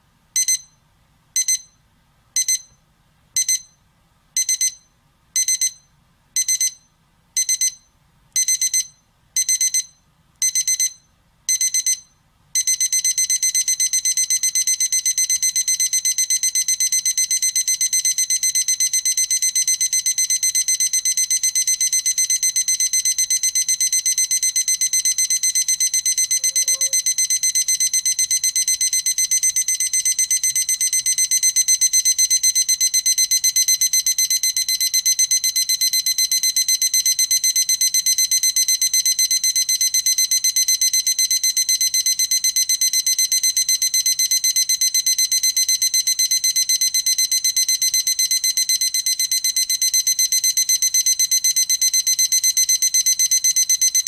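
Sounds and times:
alarm clock beeping: 12.6s - 34.0s.

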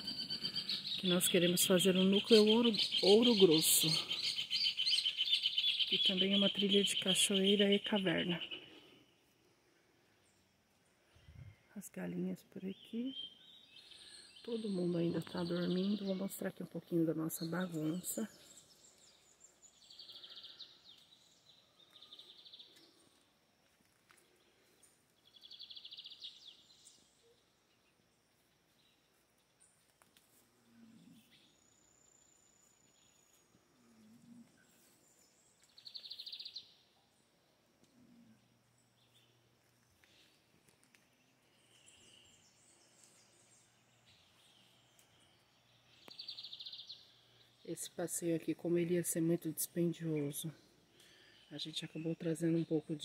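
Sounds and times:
bird trill: 0.0s - 7.8s
faint birds chirping: 0.0s - 53.0s.

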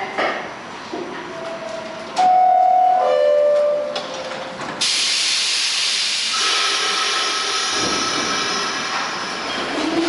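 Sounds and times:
air release hiss: 4.8s - 8.9s.

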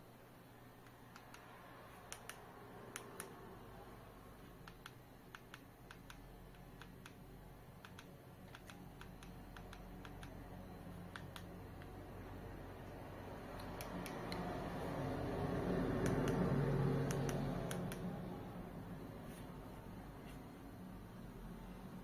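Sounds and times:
remote control buttons clicking: 0.8s - 3.4s, 4.5s - 7.2s, 7.8s - 12.0s, 12.8s - 14.5s, 17.0s - 18.1s.

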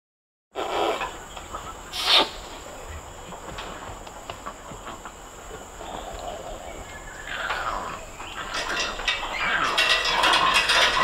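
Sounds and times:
orangutan calling: 0.6s - 2.6s, 5.9s - 10.4s.

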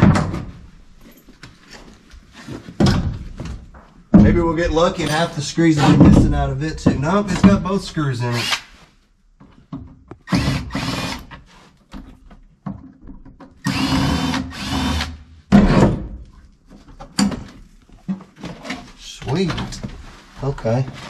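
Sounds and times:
power drill whirring: 8.4s - 8.7s, 10.3s - 11.4s, 13.6s - 15.2s.

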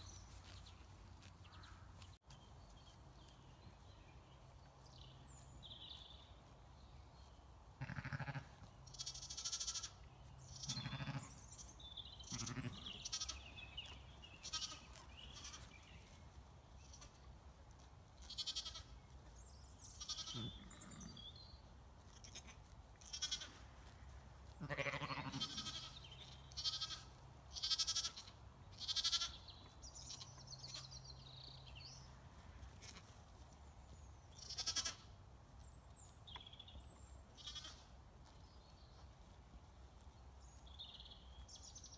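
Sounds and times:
lambs bleating: 7.8s - 10.0s, 10.6s - 15.7s, 18.2s - 18.9s, 20.0s - 21.1s, 22.0s - 23.6s, 24.5s - 29.4s, 32.8s - 33.1s, 34.4s - 35.1s, 37.4s - 37.8s.

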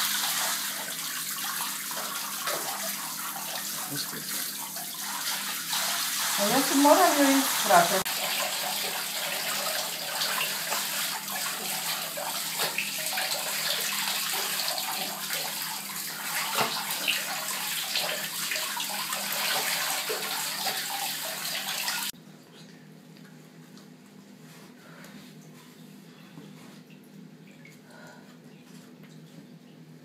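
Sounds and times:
shower spraying water: 0.0s - 22.2s.

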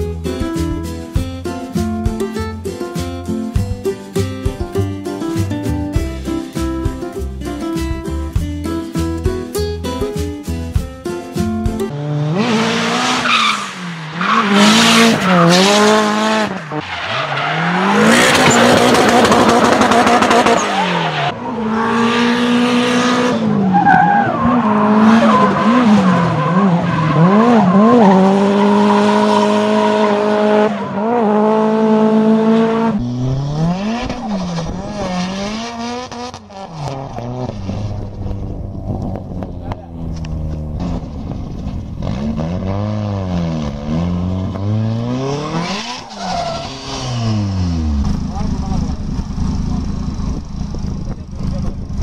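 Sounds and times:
car engines revving hard: 11.9s - 52.0s
tyres screeching: 12.8s - 22.0s, 44.6s - 47.8s.

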